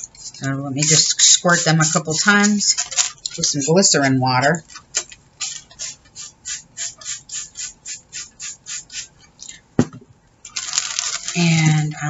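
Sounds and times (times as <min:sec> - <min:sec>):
spray bottle hissing sprays: 0:05.4 - 0:09.2.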